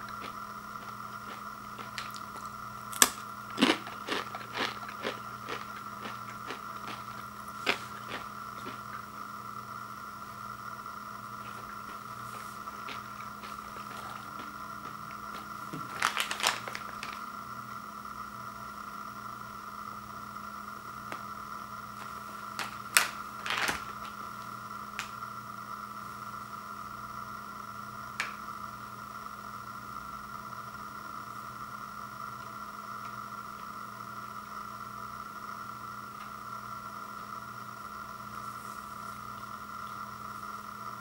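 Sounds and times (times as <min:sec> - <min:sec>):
steady background hum: 0:00.0 - 0:41.0
plastic bag crinkling: 0:15.3 - 0:17.3.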